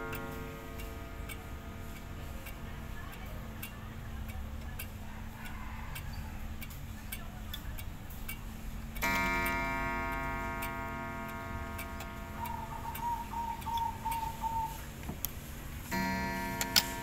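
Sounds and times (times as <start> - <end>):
clock gong ringing: 0.0 - 3.0, 9.0 - 13.0, 15.9 - 17.0
pendulum clock ticking: 0.0 - 15.0, 15.6 - 17.0.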